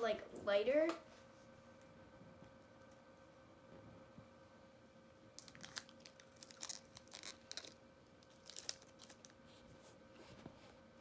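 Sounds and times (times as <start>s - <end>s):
plastic wrapper crinkling and tearing: 5.4s - 9.4s.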